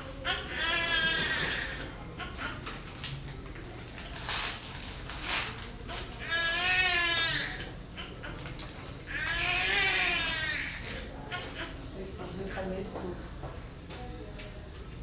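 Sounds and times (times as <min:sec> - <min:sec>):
newborn baby crying: 0:09.1 - 0:11.8.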